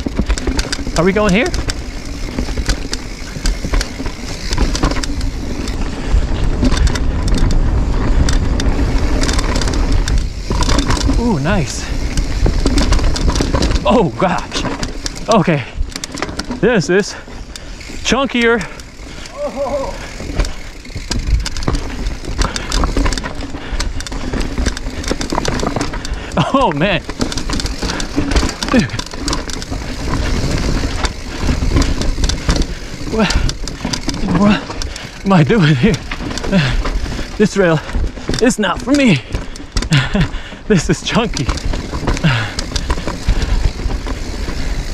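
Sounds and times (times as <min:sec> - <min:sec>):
bike frame rattling: 0:00.0 - 0:44.9
wind rumbling on microphone: 0:00.0 - 0:44.9.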